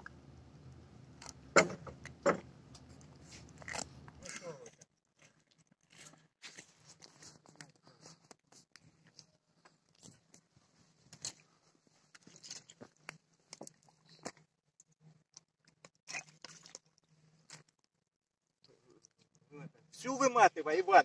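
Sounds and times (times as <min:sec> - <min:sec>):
faint crunches and clicks on ice: 0:02.0 - 0:18.0.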